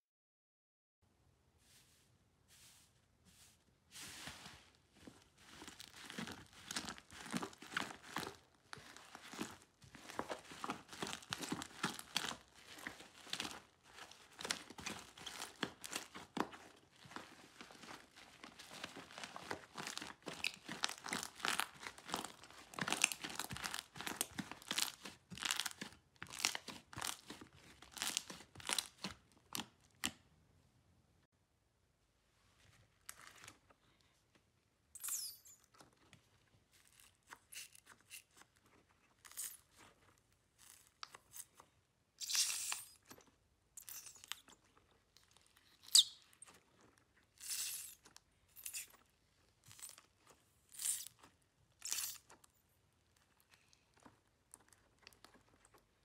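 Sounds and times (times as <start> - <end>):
slime squelches: 1.7 - 30.2, 35.1 - 56.0
slime crackling and popping: 5.4 - 30.1, 50.7 - 52.3.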